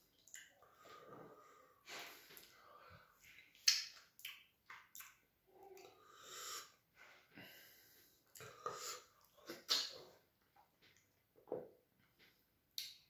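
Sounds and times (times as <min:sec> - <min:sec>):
wet mouth noises and chewing: 0:00.1 - 0:00.6, 0:03.3 - 0:05.2, 0:08.3 - 0:10.1
breathing: 0:00.6 - 0:03.3, 0:06.0 - 0:09.0.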